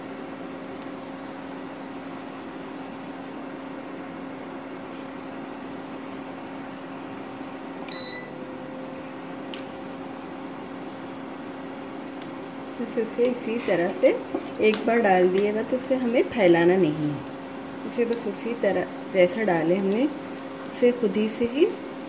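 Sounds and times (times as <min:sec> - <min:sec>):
electric cooktop humming: 0:00.0 - 0:22.0
short beep: 0:07.9 - 0:08.4.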